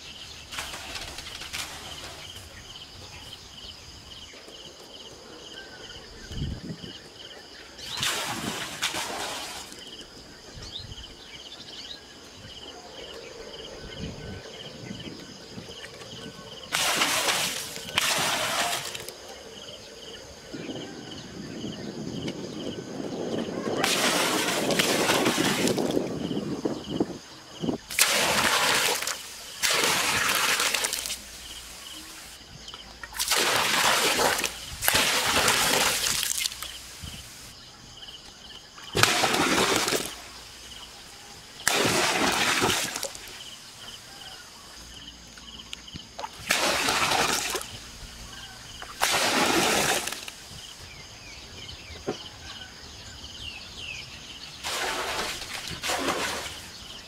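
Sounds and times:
water pouring into a pool: 0:07.8 - 0:09.8, 0:16.7 - 0:19.1, 0:23.8 - 0:26.1, 0:27.9 - 0:32.4, 0:33.1 - 0:37.0, 0:39.0 - 0:40.3, 0:41.6 - 0:43.4, 0:46.2 - 0:47.8, 0:49.0 - 0:50.4, 0:54.6 - 0:56.8.

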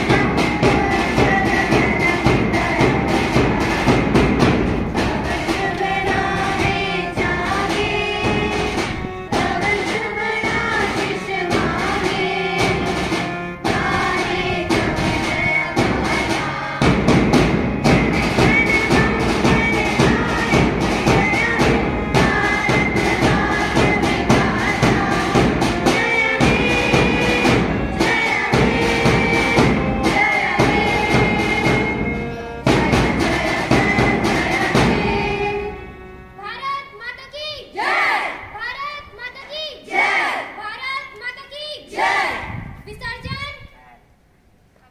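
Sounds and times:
rapid drum beat: 0:00.0 - 0:35.6
students singing in chorus: 0:00.0 - 0:36.2, 0:37.7 - 0:38.5, 0:39.9 - 0:40.6, 0:41.9 - 0:42.6
harmonium: 0:00.0 - 0:36.8.

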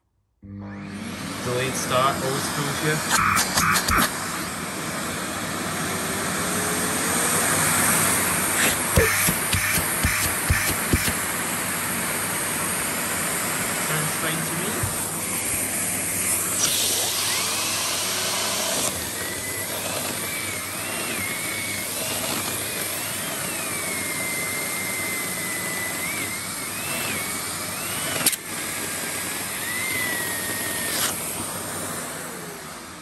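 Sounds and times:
vacuum cleaner motor whining: 0:00.5 - 0:33.0
sharp clicks: 0:03.1 - 0:04.1.

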